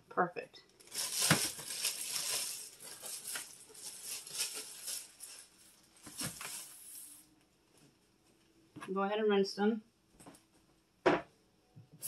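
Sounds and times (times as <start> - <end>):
plastic bag crinkling: 0.7 - 7.2.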